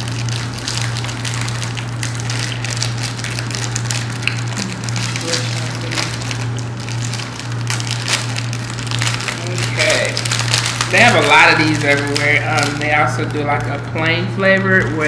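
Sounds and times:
plastic wrapper crinkling: 0.0 - 15.0
steady low hum: 0.0 - 15.0.

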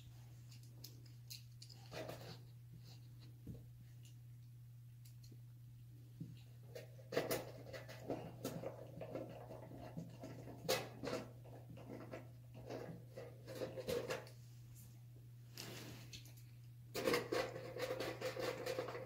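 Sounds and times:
steady low hum: 0.0 - 9.1.

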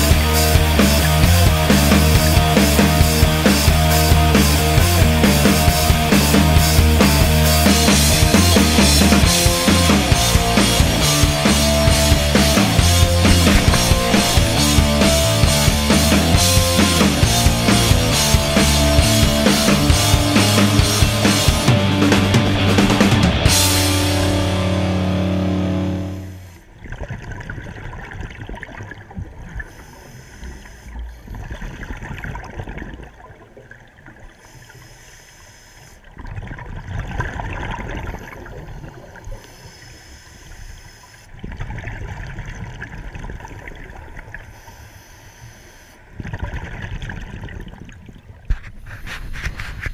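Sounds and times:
scuba exhaust bubbles gurgling: 0.0 - 21.7, 25.2 - 49.1
background music: 0.0 - 26.6.

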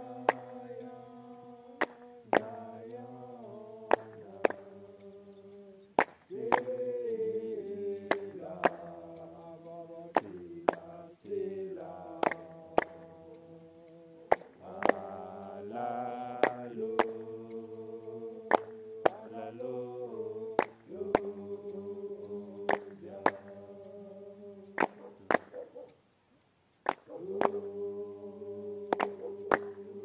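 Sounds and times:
congregation chanting a hymn: 0.0 - 25.5, 27.1 - 30.0.

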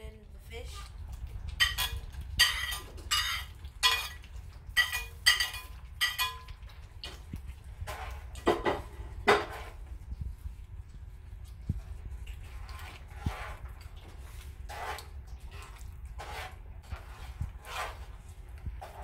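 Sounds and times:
spoon stirring thick soup: 0.7 - 19.0
spoon scraping plate and pot: 1.6 - 6.6, 7.8 - 9.8, 14.7 - 18.2.

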